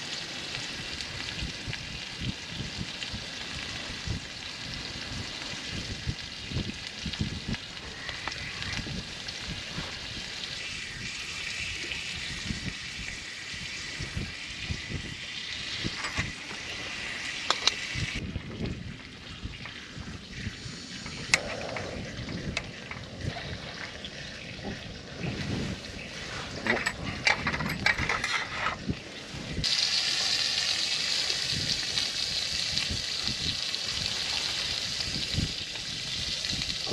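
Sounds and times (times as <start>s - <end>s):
meat sizzling on a grill: 0.0s - 18.2s, 28.8s - 36.9s.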